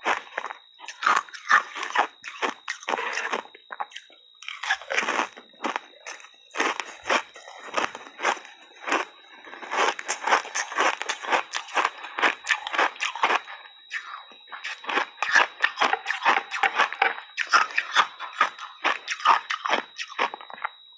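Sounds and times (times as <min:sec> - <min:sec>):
ice chips crunching chewing: 0:00.0 - 0:20.8.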